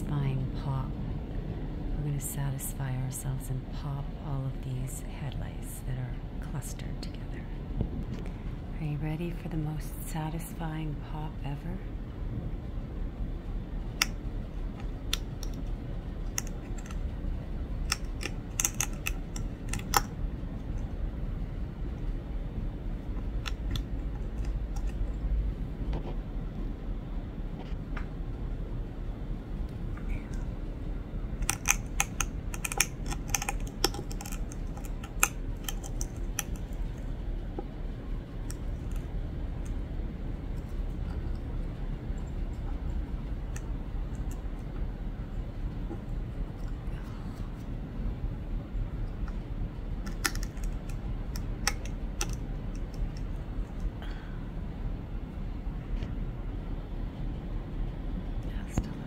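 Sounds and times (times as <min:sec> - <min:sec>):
small sharp clicks and pops: 0:17.8 - 0:20.9, 0:31.4 - 0:37.1, 0:50.0 - 0:53.9.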